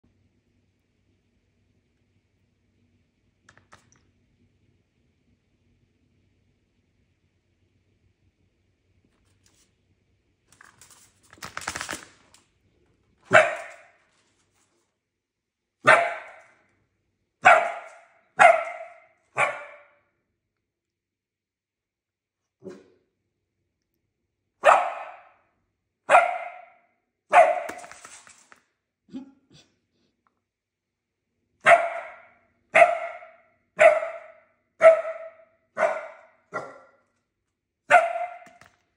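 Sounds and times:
puppy barking: 13.3 - 14.0, 15.8 - 16.6, 17.4 - 20.0, 24.6 - 25.5, 26.1 - 27.9, 31.6 - 37.0, 37.9 - 38.6.

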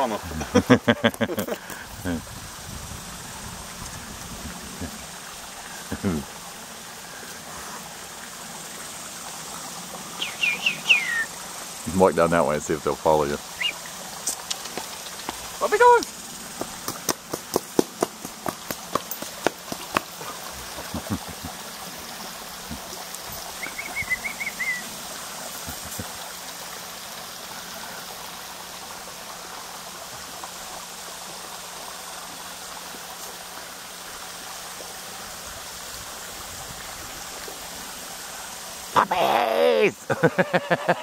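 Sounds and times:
running water hissing: 0.0 - 41.0
high chirping call: 10.2 - 11.3, 13.6 - 13.9, 23.6 - 24.9.

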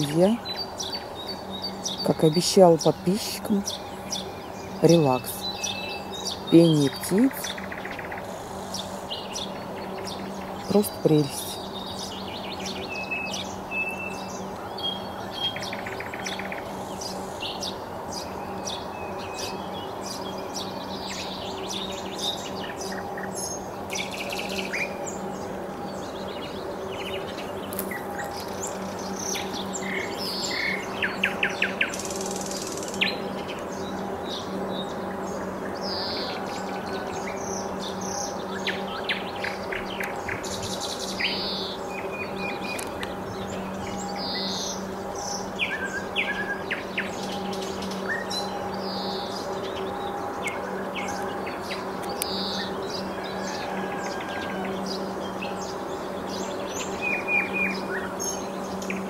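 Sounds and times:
nightingale singing: 0.0 - 53.6
steady low hum: 0.0 - 59.0.

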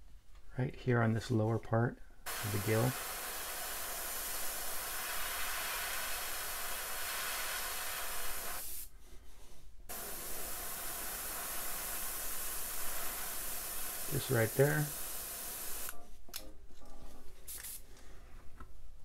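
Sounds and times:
airbrush spraying hiss: 2.3 - 16.0, 17.5 - 17.8.

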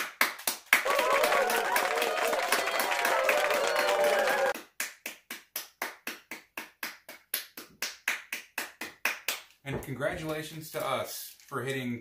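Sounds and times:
hands clapping: 0.0 - 9.6
people cheering: 0.8 - 4.6.

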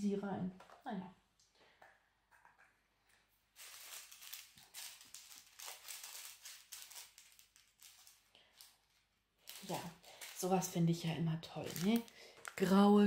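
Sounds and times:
small beads rattling: 3.5 - 10.8, 11.5 - 12.8
plastic packets crinkling: 3.5 - 13.0.

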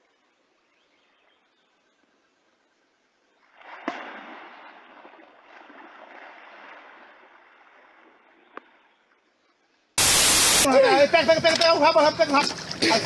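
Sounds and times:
water splashing and thrashing: 3.4 - 9.0, 10.0 - 13.0.

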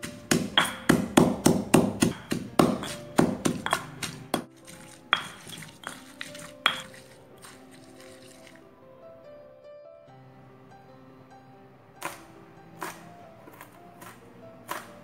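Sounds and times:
pestle pounding in stone mortar: 0.0 - 7.6
background music: 0.0 - 15.0.

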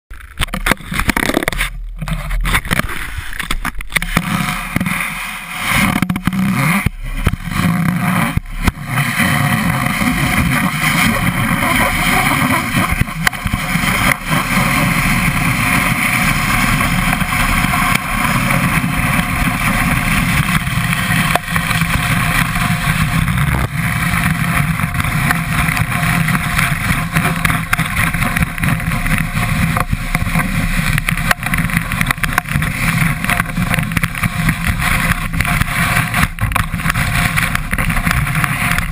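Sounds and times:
skis rushing on snow: 0.2 - 38.9
wind on microphone: 0.3 - 38.9.

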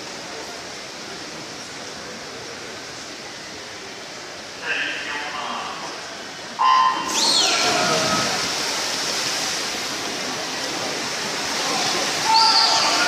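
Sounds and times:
whistles: 6.6 - 8.3
water splashing: 6.6 - 13.0
crowd cheering: 11.9 - 13.0
people shouting: 12.2 - 13.0.

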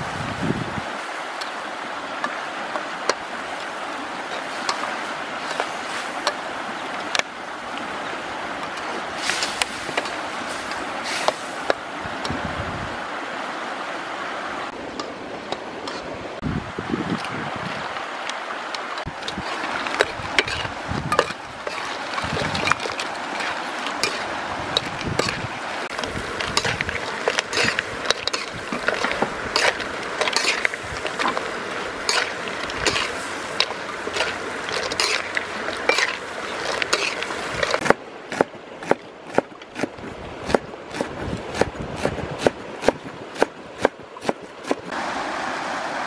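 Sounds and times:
steady hiss: 7.3 - 12.4, 23.1 - 37.8
metal spatula scraping a wok: 19.4 - 25.4, 26.4 - 37.8
cleaver chopping on wooden board: 37.8 - 39.9.

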